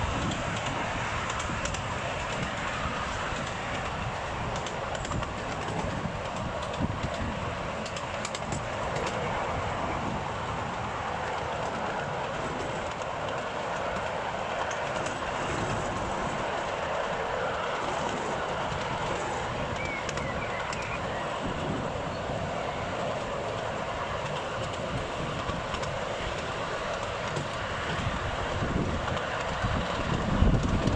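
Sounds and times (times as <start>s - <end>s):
small train wheels rumbling on rail: 0.0s - 30.9s.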